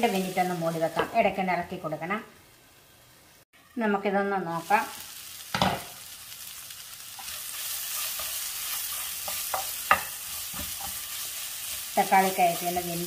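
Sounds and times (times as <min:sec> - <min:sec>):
food sizzling in a pan: 0:00.0 - 0:13.0
spatula scraping a pan: 0:07.1 - 0:12.8.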